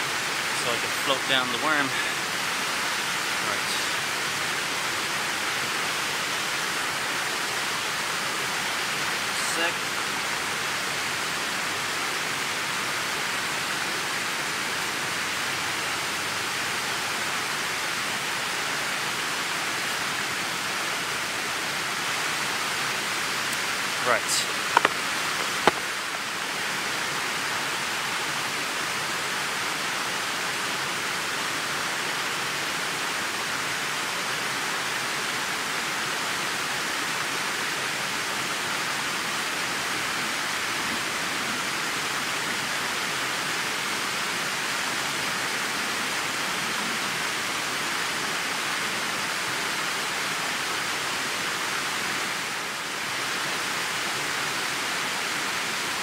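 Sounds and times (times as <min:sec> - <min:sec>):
river cascade over rocks: 0:00.0 - 0:56.0.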